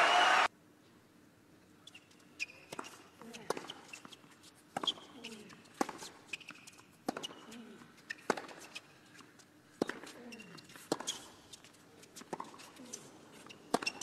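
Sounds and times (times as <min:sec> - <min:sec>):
hushed arena ambience: 0:00.0 - 0:05.7
tennis ball struck by racquets: 0:05.7 - 0:08.7, 0:09.7 - 0:11.4, 0:13.7 - 0:14.0.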